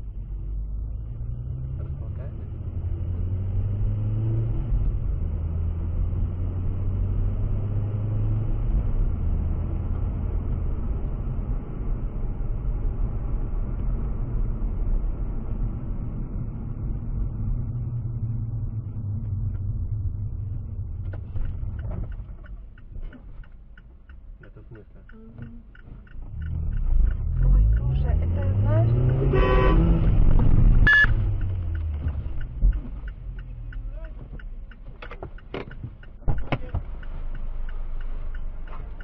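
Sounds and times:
car engine and tyres rumbling: 0:00.0 - 0:39.0
faint clicks: 0:20.4 - 0:29.3, 0:30.2 - 0:39.0.

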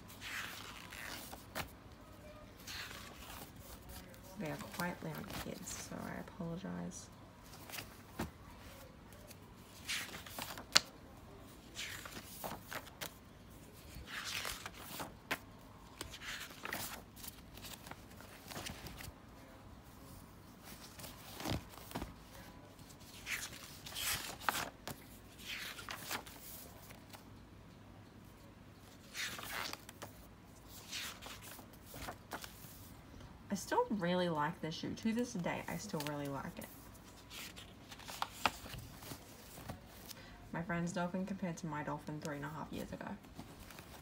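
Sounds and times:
paper pages rustling: 0:02.6 - 0:06.1, 0:07.4 - 0:19.1, 0:20.6 - 0:27.2, 0:28.8 - 0:32.9, 0:35.7 - 0:40.2, 0:43.2 - 0:44.0.

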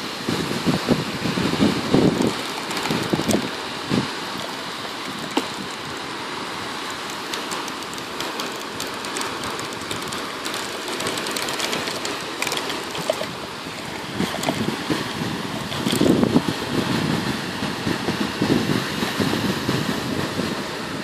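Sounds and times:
wind on microphone: 0:00.0 - 0:21.0
plastic cup clicking and crackling: 0:07.1 - 0:13.3.

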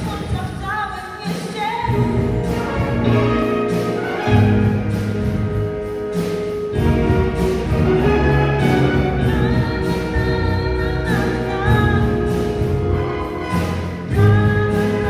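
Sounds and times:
swing band playing: 0:00.0 - 0:15.0.

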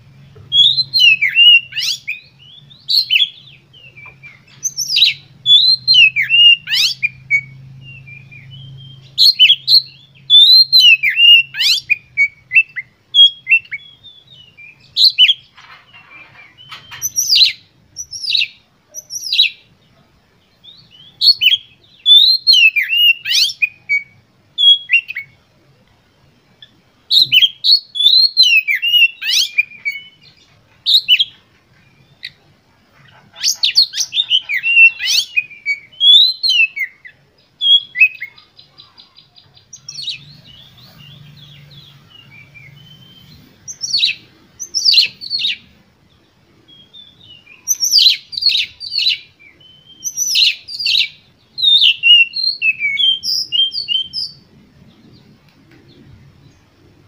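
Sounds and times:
bird singing whistled phrases: 0:00.5 - 0:15.5, 0:16.6 - 0:19.6, 0:20.6 - 0:25.4, 0:27.1 - 0:30.3, 0:30.9 - 0:31.3, 0:33.4 - 0:45.7, 0:46.7 - 0:54.5.

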